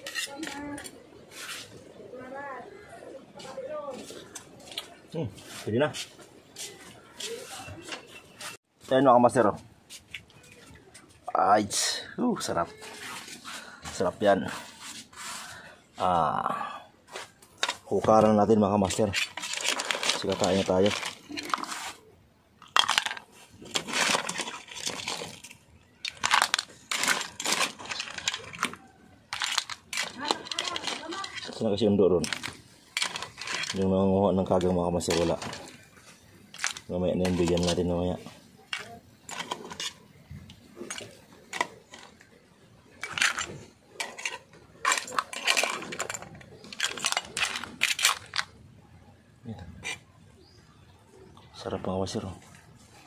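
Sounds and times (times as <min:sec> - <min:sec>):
crab shells clattering on metal pot: 0:22.6 - 0:48.6.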